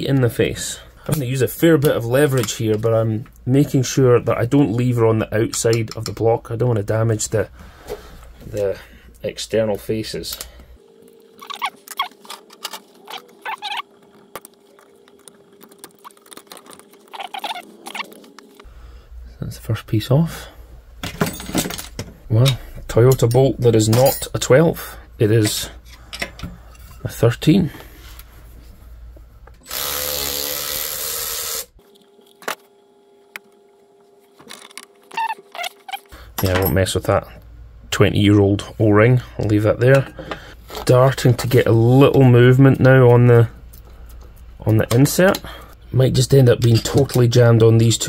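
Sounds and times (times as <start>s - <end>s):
metal squeaking and scraping: 11.4s - 13.9s, 16.0s - 18.2s, 35.1s - 36.1s
power tool running: 29.6s - 31.8s.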